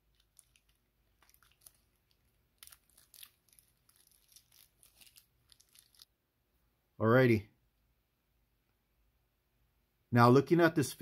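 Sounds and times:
plastic wrap crinkling: 0.0s - 6.1s.

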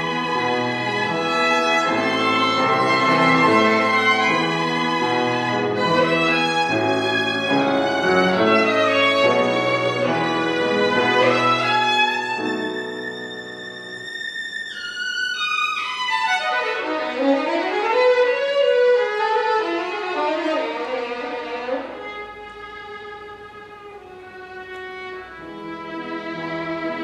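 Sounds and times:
solo violin: 0.0s - 27.0s.

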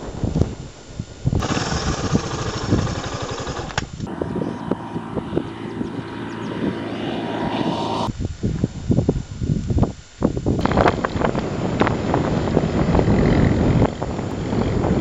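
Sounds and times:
wind noise on microphone: 0.0s - 15.0s
motorcycle engines running: 1.4s - 8.1s, 10.6s - 15.0s.

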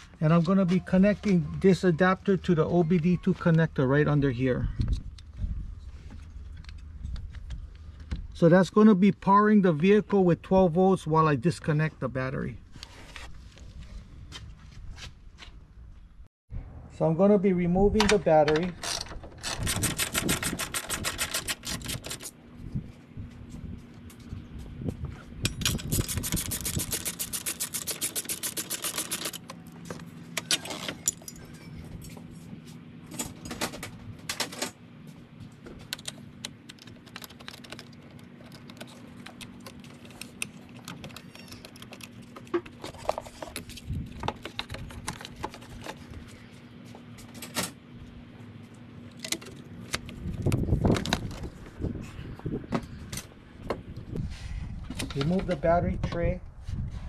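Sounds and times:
hand ratchet clicking: 25.6s - 29.4s.

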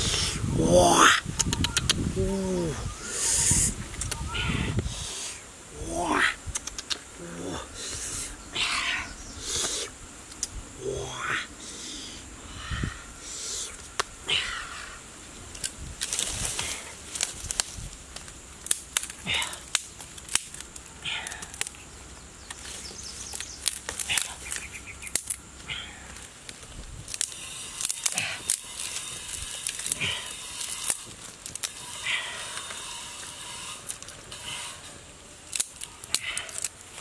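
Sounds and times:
twigs clicking and snapping: 1.1s - 2.7s, 3.4s - 4.4s, 6.4s - 7.2s, 9.6s - 10.6s, 13.8s - 14.2s, 15.5s - 37.0s.

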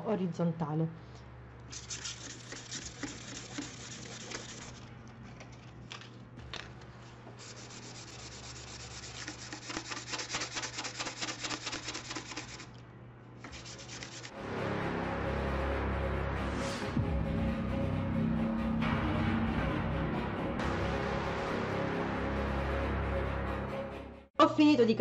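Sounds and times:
sandpaper rasping on plastic: 1.7s - 4.8s, 7.4s - 12.8s, 13.5s - 14.3s.

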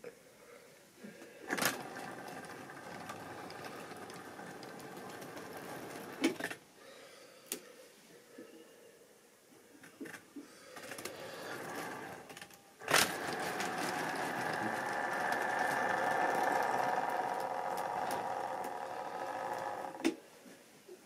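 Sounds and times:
model train motor hum: 1.5s - 6.6s, 10.8s - 20.2s
wheels clicking over rail joints: 1.5s - 6.6s, 10.8s - 20.2s.

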